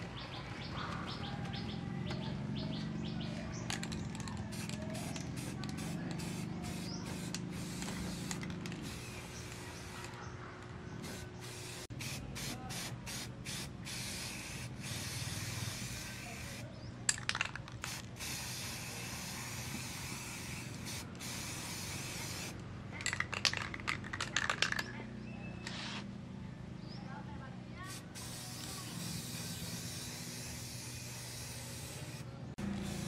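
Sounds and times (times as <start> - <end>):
aerosol spray can hissing: 4.5 - 10.0, 11.0 - 16.6, 17.9 - 22.6, 27.9 - 33.0.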